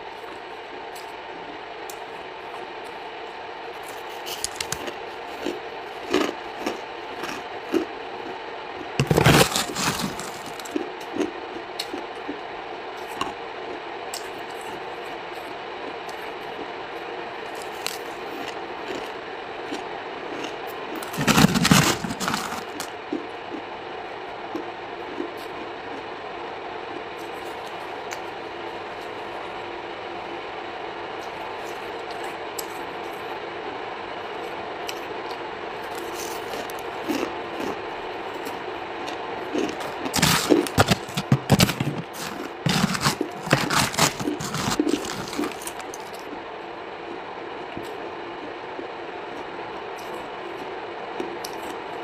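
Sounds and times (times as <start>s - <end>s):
steady low hum: 0.0s - 52.0s
crunchy chewing: 3.7s - 16.8s, 17.4s - 23.7s, 34.8s - 46.4s.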